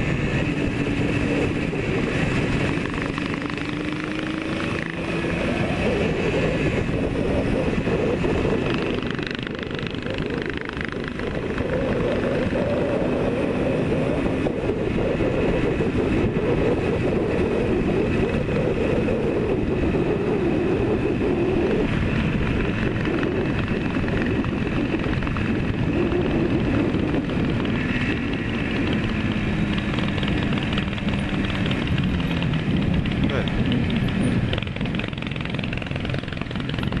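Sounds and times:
motorcycle engine running: 0.0 - 37.0
wind rush over microphone: 0.0 - 37.0.

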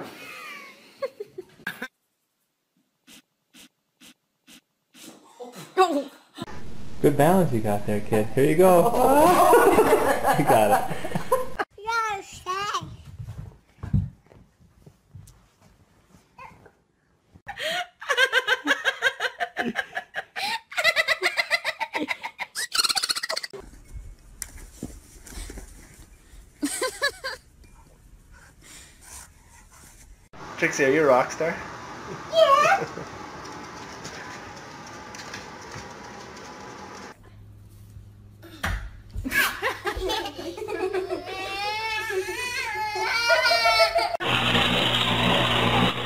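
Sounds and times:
steady low hum: 6.5 - 11.6
person laughing hard: 8.6 - 11.6, 26.6 - 27.4.

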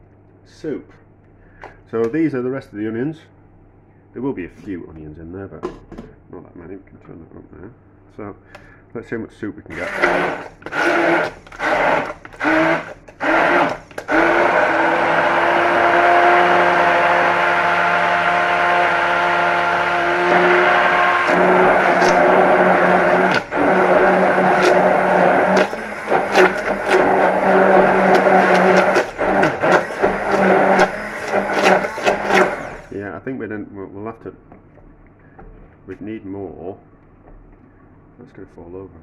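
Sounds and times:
electric blender motor: 9.7 - 33.0.

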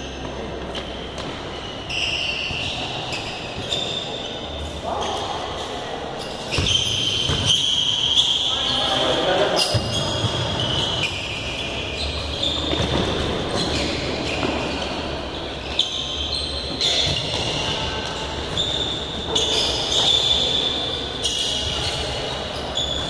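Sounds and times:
sneakers squeaking on court floor: 0.0 - 23.0.

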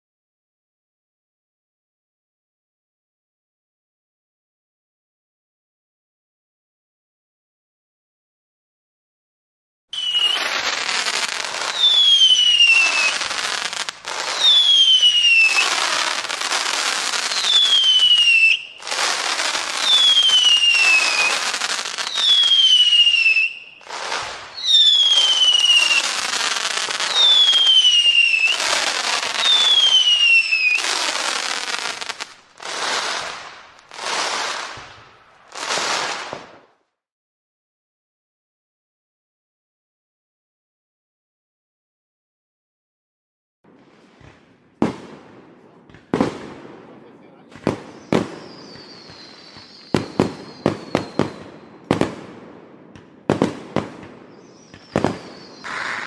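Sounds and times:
firework whistles falling in pitch: 9.9 - 36.6, 47.6 - 52.1, 53.4 - 56.0
firework bursts: 10.0 - 36.8, 43.7 - 56.0.

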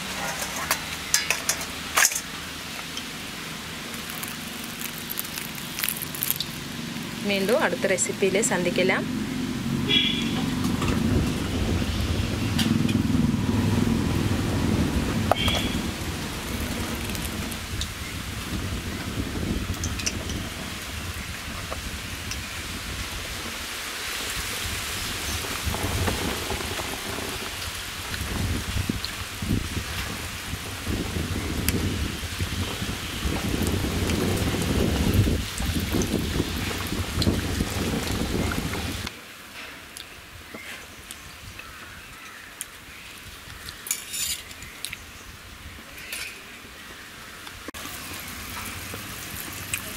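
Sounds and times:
kitchen handling noises: 0.0 - 2.3
batter frying in hot oil: 0.0 - 7.7, 13.9 - 39.1, 47.8 - 49.9
short crackle: 3.9 - 6.6.

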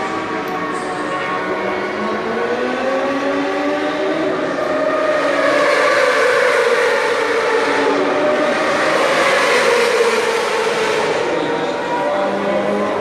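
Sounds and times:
motorcycle engines at high revs: 2.1 - 11.4.

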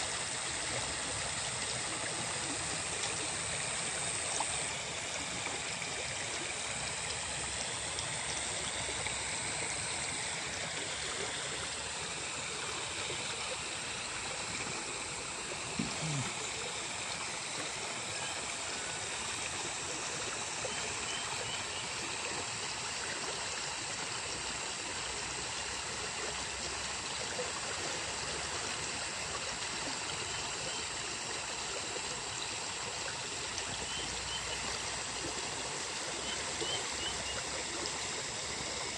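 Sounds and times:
water splashing into pond: 0.0 - 38.9.

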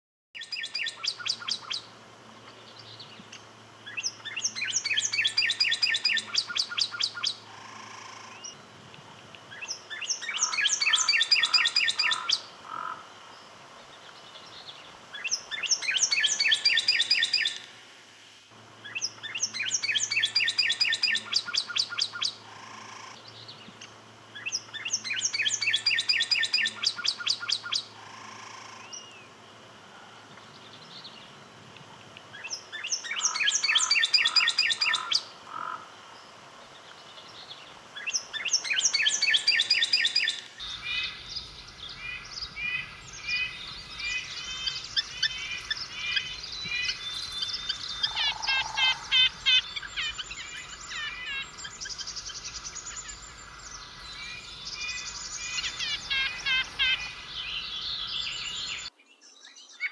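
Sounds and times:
bird singing whistled notes: 0.4 - 1.9, 3.9 - 7.4, 9.5 - 12.4, 14.5 - 17.6, 18.8 - 22.4, 24.4 - 27.9, 32.4 - 35.2, 38.0 - 59.9.

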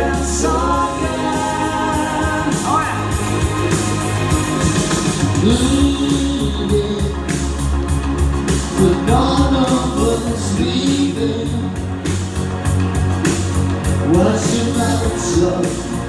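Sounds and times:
male vocal group singing: 0.0 - 3.9, 5.4 - 7.8, 8.7 - 12.2, 13.9 - 16.0
amplified backing music with beat: 0.0 - 16.0.

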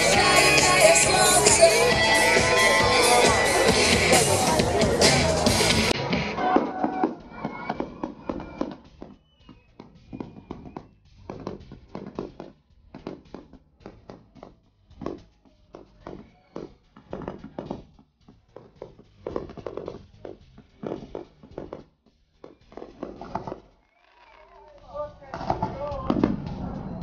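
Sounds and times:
faint firework whistles: 6.9 - 11.0.

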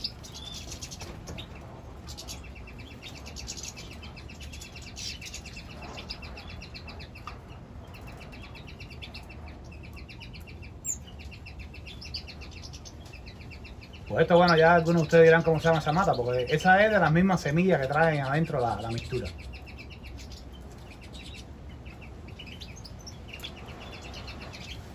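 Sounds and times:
finches twittering: 0.0 - 24.9.

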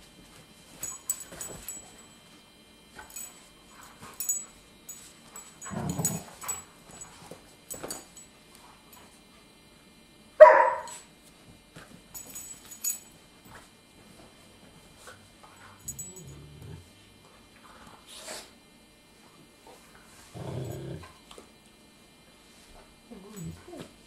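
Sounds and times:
dogs scuffling and rustling: 0.0 - 9.6, 10.9 - 16.2
dog growling: 5.7 - 6.4, 15.9 - 17.0, 20.3 - 21.2
dog barking: 10.4 - 11.0.

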